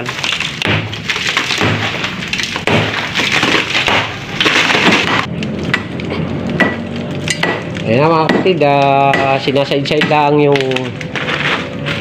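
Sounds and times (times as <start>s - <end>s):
masonry cracking and crumbling: 0.0s - 12.0s
hammer blows on concrete: 6.6s - 10.6s.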